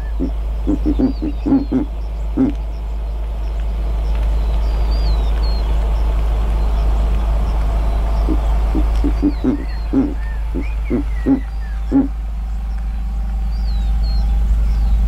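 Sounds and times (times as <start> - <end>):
owl giving short low hoots: 0.0 - 2.6, 8.3 - 12.2
small bird chirping: 0.0 - 6.9, 7.8 - 15.0
steady rushing noise: 0.0 - 15.0.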